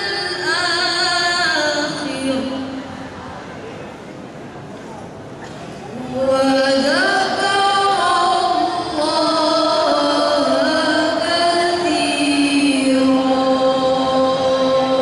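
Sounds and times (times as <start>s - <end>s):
girls singing into microphones: 0.0s - 2.8s, 5.9s - 15.0s.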